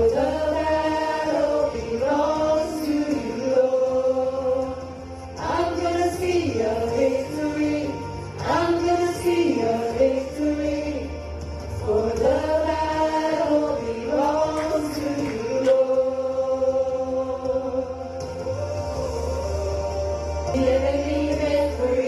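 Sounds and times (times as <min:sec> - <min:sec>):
instrumental accompaniment with low bass: 0:00.0 - 0:22.0
voices singing slow melody: 0:00.0 - 0:22.0.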